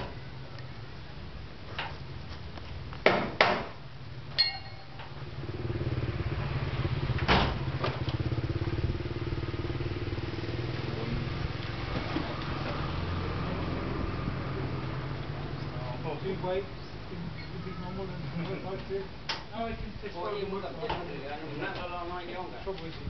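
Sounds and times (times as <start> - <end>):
sharp metallic knocks: 3.0 - 5.1.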